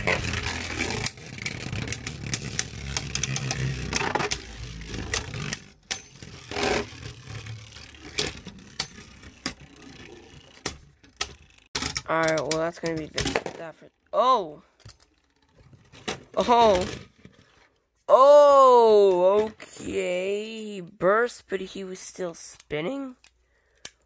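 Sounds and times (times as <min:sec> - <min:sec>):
spinning tops whirring: 0:00.0 - 0:11.9.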